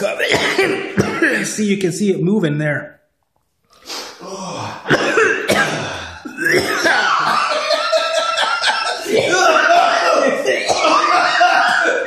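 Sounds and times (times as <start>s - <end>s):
men coughing: 0.0s - 1.6s, 4.4s - 12.0s.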